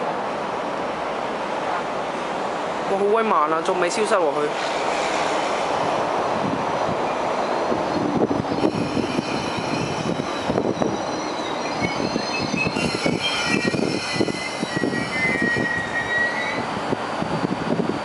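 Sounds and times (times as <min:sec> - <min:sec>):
high wheel squealing: 0:07.1 - 0:18.0.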